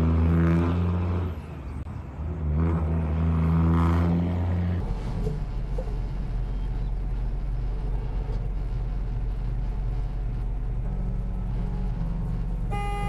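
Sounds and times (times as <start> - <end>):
truck engine and road rumble: 0.0 - 13.0
truck horn blast: 11.5 - 13.0.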